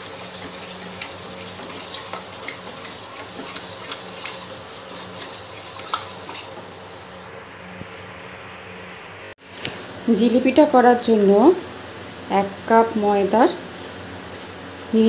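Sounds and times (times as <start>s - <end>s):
wooden spatula scraping a pan: 0.0s - 6.7s
light steady sizzle: 0.0s - 8.4s.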